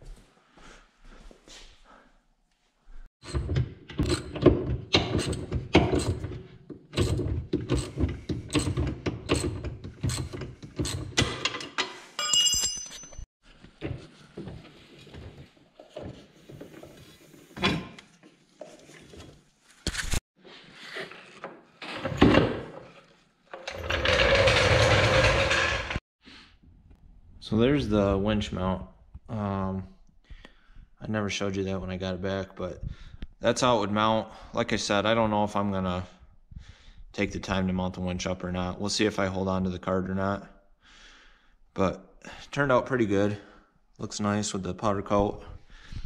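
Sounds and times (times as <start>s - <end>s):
metal clanks and knocks: 3.2s - 13.2s.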